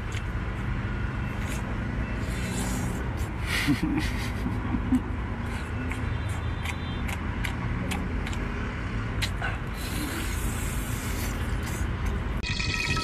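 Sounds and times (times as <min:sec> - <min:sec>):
eating clicks and smacks: 0:05.4 - 0:10.4.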